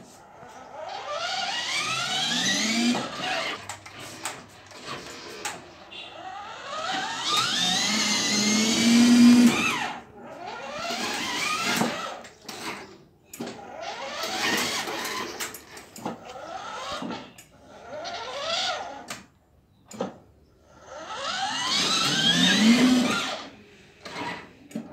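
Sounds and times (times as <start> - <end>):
toy car electric motors whining: 0.2 - 19.3, 20.0 - 24.6.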